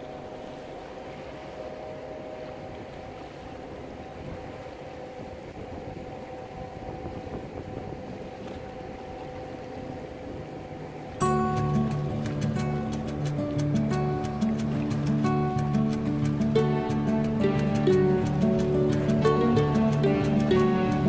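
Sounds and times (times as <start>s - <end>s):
boat motor humming: 0.0s - 21.0s
water rushing against hull: 0.0s - 21.0s
music: 11.2s - 21.0s.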